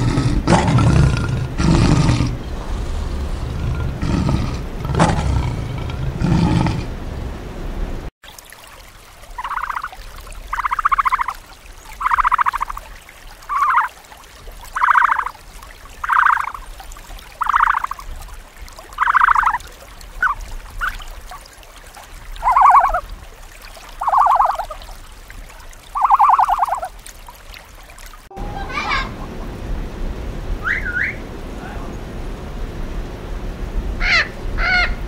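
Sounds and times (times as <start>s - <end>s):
animal buzzy calls: 9.4s - 11.4s, 12.0s - 12.8s, 13.5s - 14.0s, 14.7s - 15.4s, 16.0s - 16.7s, 17.4s - 18.1s, 19.0s - 19.6s, 20.2s - 21.4s, 22.4s - 23.0s, 24.0s - 24.8s, 25.9s - 26.9s.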